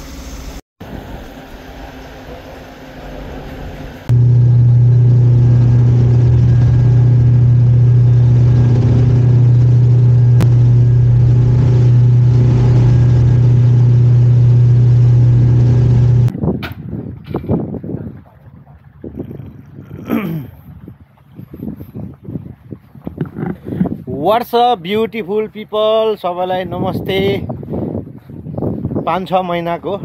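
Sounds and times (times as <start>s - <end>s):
low motor drone: 0.9s - 16.3s.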